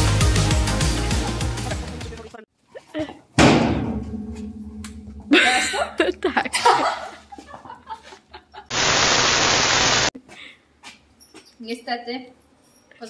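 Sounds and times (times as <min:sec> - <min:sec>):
girl giggling: 0:02.7 - 0:03.3, 0:05.3 - 0:08.7
loud even hiss: 0:08.7 - 0:10.1.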